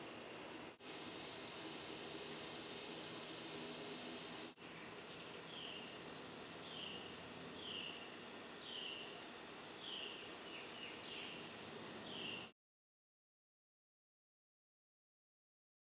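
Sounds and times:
outdoor background hiss: 0:00.0 - 0:12.6.

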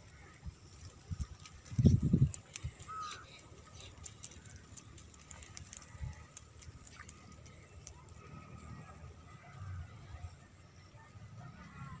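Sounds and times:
net hauled through water: 0:00.0 - 0:10.6
faint bird calls: 0:02.6 - 0:08.7.

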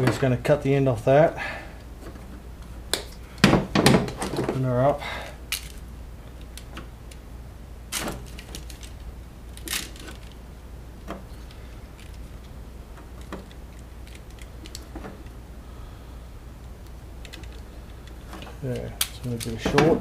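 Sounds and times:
low steady hum: 0:00.0 - 0:20.0
hand tools clicking on wire: 0:16.8 - 0:19.9.

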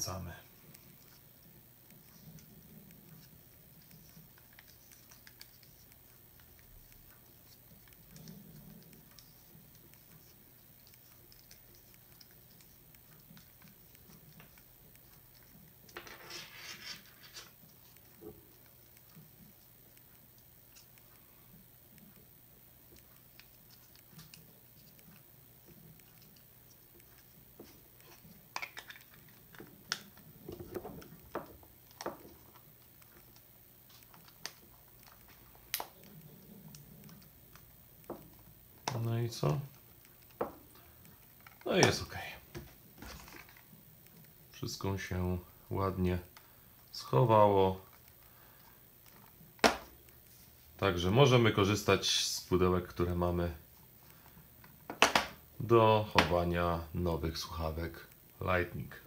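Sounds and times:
scraping and rustling: 0:00.1 - 0:19.8.

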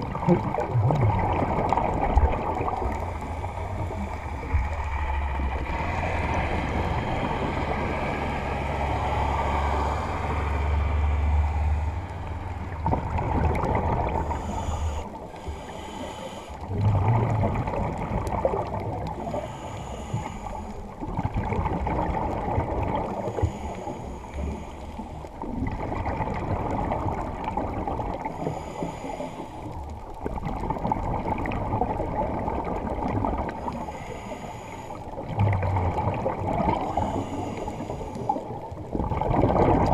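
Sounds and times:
gurgling exhaled bubbles: 0:00.0 - 0:39.9
underwater watery rush: 0:00.0 - 0:39.9
low hum: 0:00.8 - 0:17.6.

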